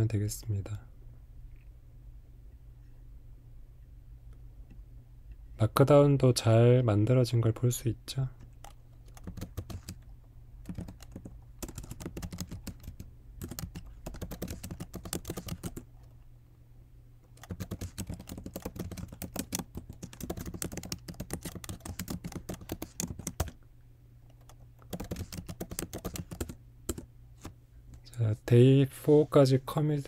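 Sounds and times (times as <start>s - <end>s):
computer keyboard typing: 8.6s - 10.0s, 10.6s - 15.8s, 17.4s - 23.6s, 24.4s - 27.1s.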